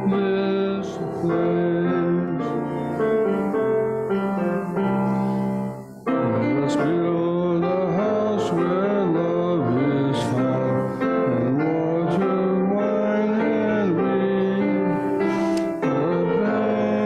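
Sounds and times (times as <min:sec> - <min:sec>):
piano accompaniment: 0:00.0 - 0:17.0
congregation singing a hymn: 0:06.2 - 0:17.0.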